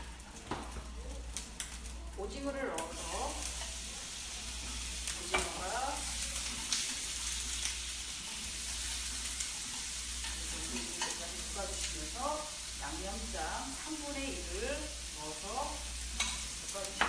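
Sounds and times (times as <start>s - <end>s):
food sizzling in a frying pan: 0.0s - 17.0s
chopsticks clicking against pan: 1.3s - 1.8s, 6.4s - 7.0s.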